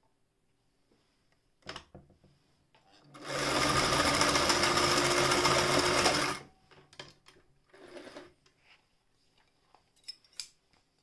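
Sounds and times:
electric sewing machine stitching: 3.1 - 6.5, 7.7 - 8.3.

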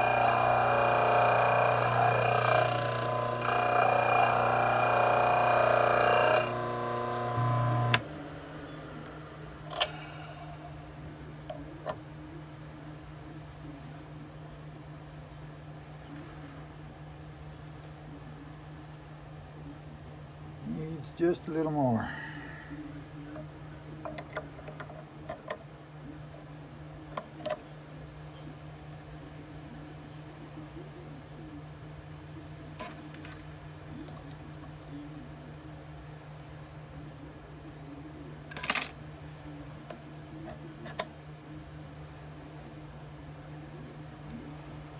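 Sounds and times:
grinding wheel whine: 0.0 - 10.4
faint steady hum: 0.0 - 24.8
low motor hum: 3.2 - 9.5.

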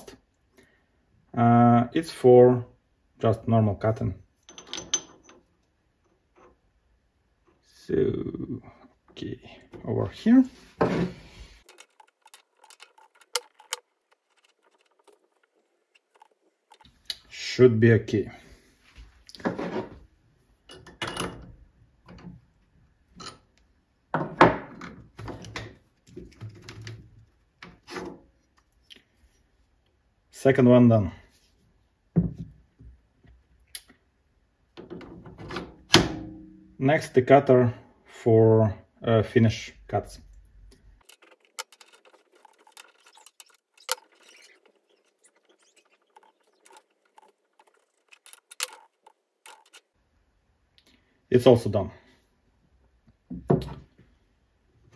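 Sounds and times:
metal clunks and scrapes: 10.6 - 16.9, 19.4 - 20.1, 27.6 - 28.3
metal tool clicks and scrapes: 11.6 - 16.9, 41.0 - 49.9.

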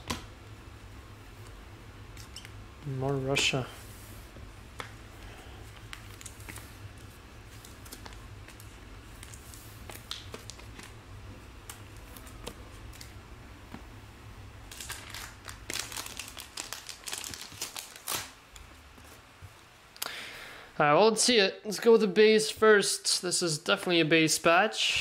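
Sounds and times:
low steady hum: 0.0 - 25.0
plastic foil wrapper crinkling: 5.8 - 6.7, 14.7 - 18.4.

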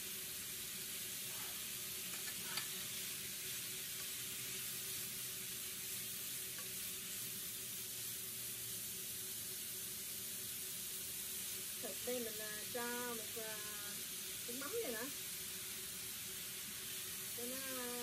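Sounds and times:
meat sizzling in hot oil: 0.0 - 18.0.

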